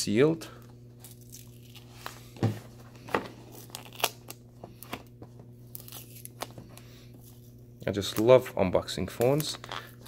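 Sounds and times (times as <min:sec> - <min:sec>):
cardboard tearing and crinkling: 0:03.4 - 0:04.4, 0:05.7 - 0:06.6.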